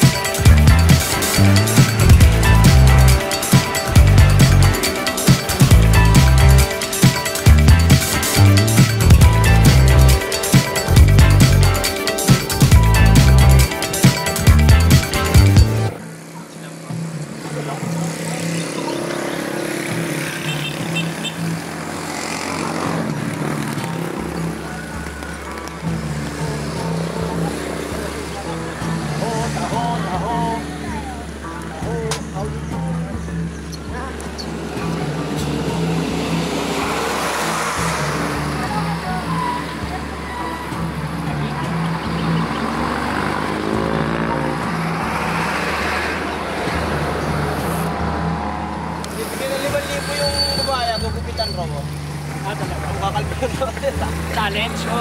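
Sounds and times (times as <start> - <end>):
vehicle engine running: 0.0 - 10.3
road traffic passing: 0.0 - 55.0.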